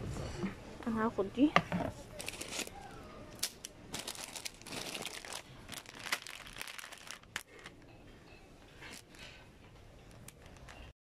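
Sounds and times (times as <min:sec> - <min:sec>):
plastic wrapping crinkling: 0:02.2 - 0:07.8, 0:08.8 - 0:09.4, 0:10.1 - 0:10.9.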